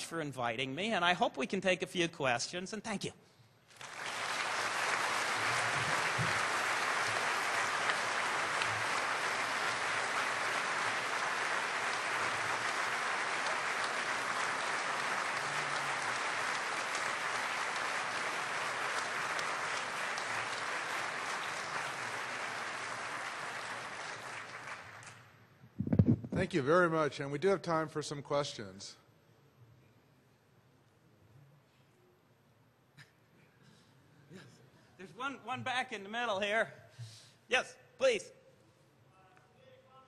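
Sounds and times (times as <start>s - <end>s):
audience applauding: 3.7s - 25.3s.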